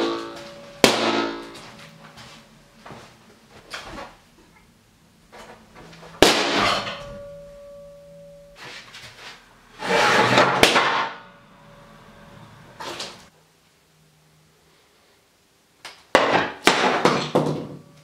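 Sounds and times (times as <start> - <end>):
sharp bang with metallic ring: 0.0 - 1.9, 6.2 - 8.6, 10.3 - 12.3
sharp crack: 6.2 - 7.0, 10.4 - 11.3.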